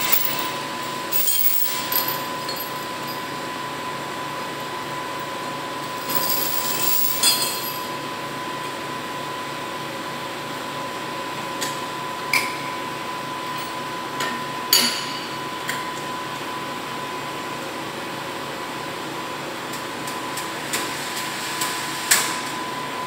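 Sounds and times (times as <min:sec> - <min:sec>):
steel chains clinking: 0:00.0 - 0:03.4, 0:05.8 - 0:08.0
steady hum with high tone: 0:00.0 - 0:19.5.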